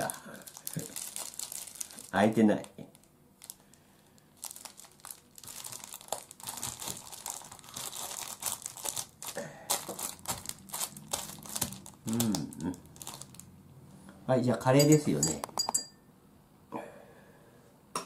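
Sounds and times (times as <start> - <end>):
plastic wrapping crinkling: 0.0 - 13.5.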